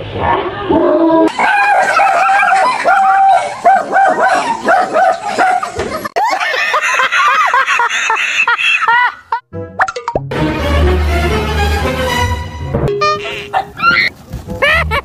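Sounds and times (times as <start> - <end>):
dog barking and yipping: 1.3 - 5.8, 13.0 - 14.8
man and woman laughing: 5.7 - 9.4, 14.5 - 15.0.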